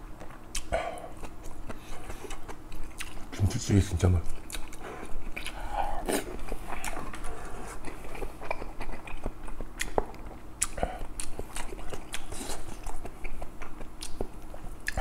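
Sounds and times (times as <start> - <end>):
close chewing: 0.0 - 3.4, 4.1 - 15.0
wet mouth clicks and smacks: 9.8 - 12.4.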